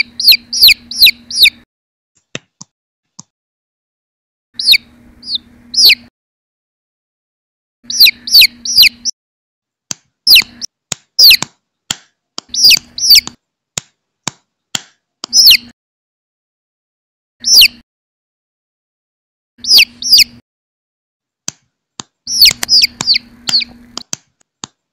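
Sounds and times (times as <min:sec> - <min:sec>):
chicks peeping: 0:00.0 - 0:01.6, 0:04.6 - 0:06.1, 0:07.8 - 0:09.1, 0:10.3 - 0:11.5, 0:12.4 - 0:13.4, 0:15.3 - 0:15.7, 0:17.4 - 0:17.8, 0:19.6 - 0:20.4, 0:22.3 - 0:24.1
sharp clicks: 0:21.5 - 0:24.8.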